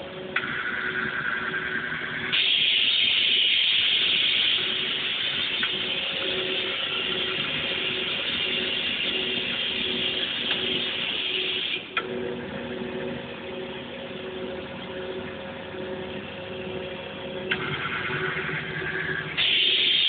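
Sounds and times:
vacuum suction hiss: 0.4s - 11.8s, 19.4s - 20.0s.

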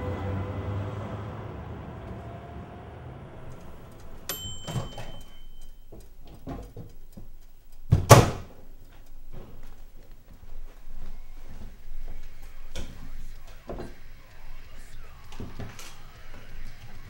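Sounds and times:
sharp clicks and knocks: 3.5s - 10.3s
brief high ring: 4.3s - 5.8s.

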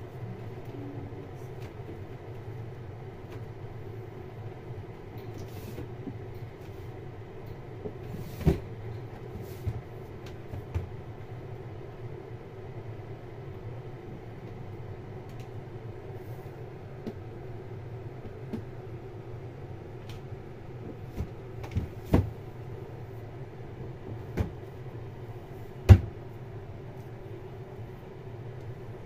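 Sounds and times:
steady low hum: 0.0s - 29.0s
dull knocks and bumps: 20.9s - 22.4s, 25.9s - 26.2s.

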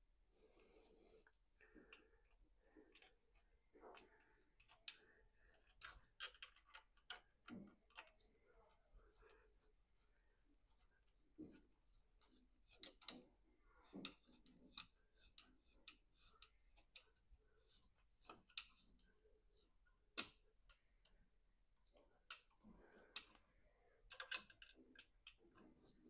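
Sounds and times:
plastic parts clicking together: 24.0s - 25.7s.

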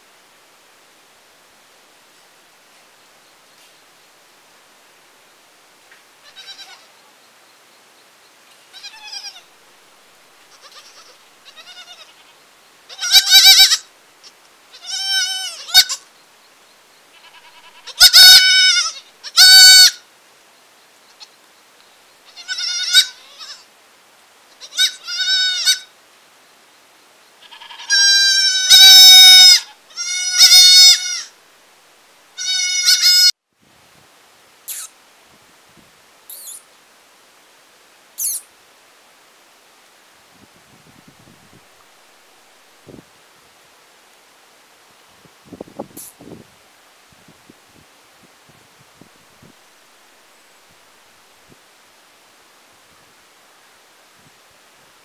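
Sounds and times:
goat kids bleating: 6.2s - 6.9s, 8.7s - 9.5s, 10.5s - 16.1s, 17.1s - 20.0s, 22.2s - 23.7s, 24.5s - 25.9s, 27.4s - 31.4s, 32.4s - 33.3s.

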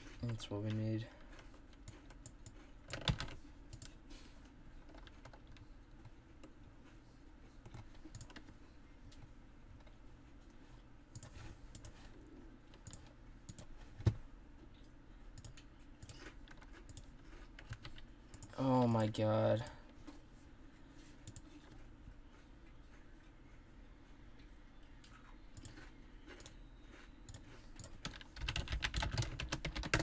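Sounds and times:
keyboard and mouse clicks: 1.7s - 4.0s, 7.6s - 8.5s, 11.1s - 12.0s, 12.7s - 14.2s, 15.3s - 18.6s, 25.0s - 25.8s, 27.2s - 30.0s.

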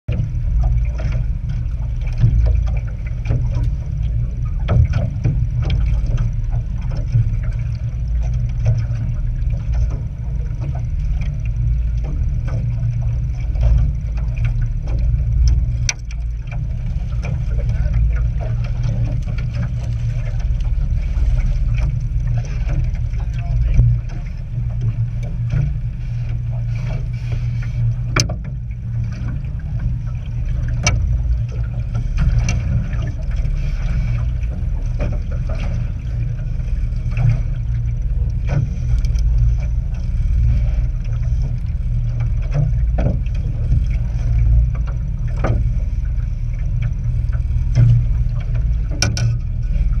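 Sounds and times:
boat engine rumble: 0.0s - 50.0s
clicks and knocks: 48.9s - 49.4s.

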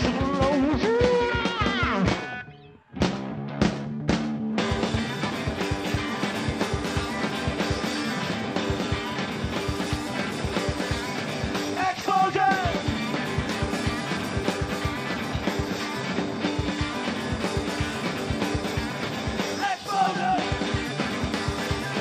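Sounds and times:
blues-rock band playing: 0.0s - 22.0s.

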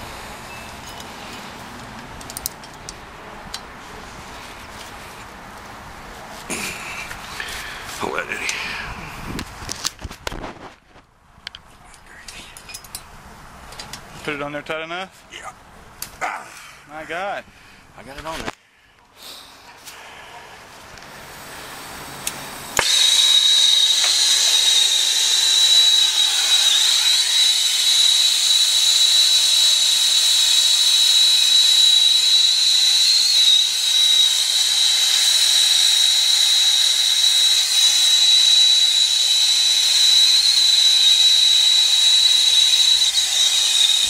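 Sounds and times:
brazing torch hissing: 21.1s - 44.0s
high whistle: 22.8s - 44.0s.

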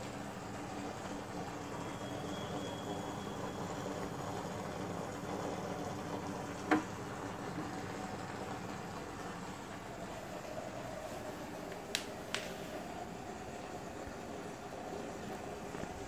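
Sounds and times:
low pump hum: 0.0s - 16.0s.

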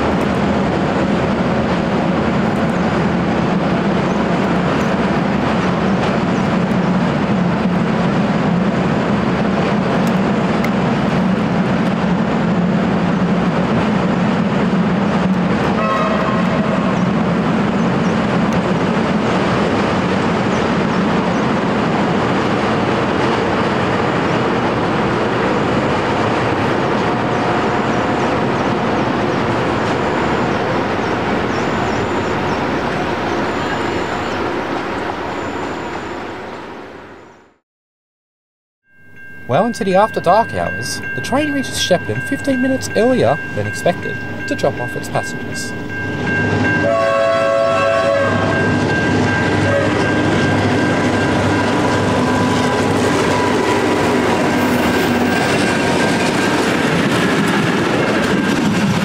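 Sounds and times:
train wheels rumbling on bridge: 0.0s - 35.0s, 40.2s - 59.0s
train horn blast: 15.7s - 17.1s, 46.8s - 48.7s, 49.6s - 50.2s.

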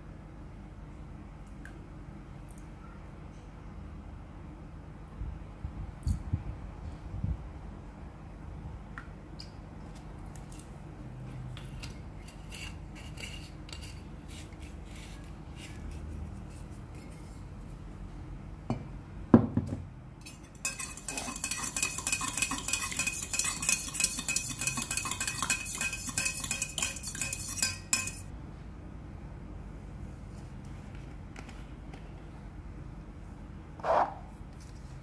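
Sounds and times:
metal spoon stirring in steel cup: 11.8s - 15.9s, 20.2s - 28.3s.

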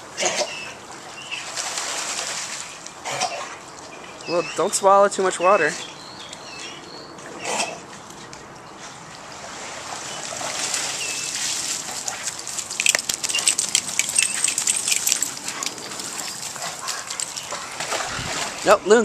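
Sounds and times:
water splashing off wet dog: 9.2s - 18.7s.

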